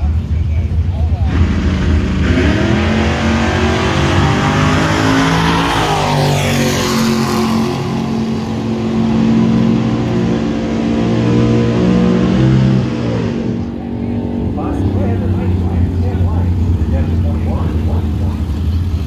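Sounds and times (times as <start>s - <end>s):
dragster engines idling loudly: 0.0s - 5.2s, 5.8s - 19.0s.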